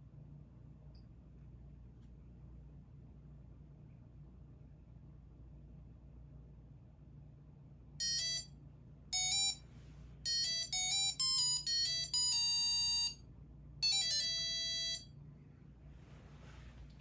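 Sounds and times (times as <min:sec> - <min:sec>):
electronic buzzer beeping tune: 0:08.0 - 0:09.6, 0:10.3 - 0:15.2.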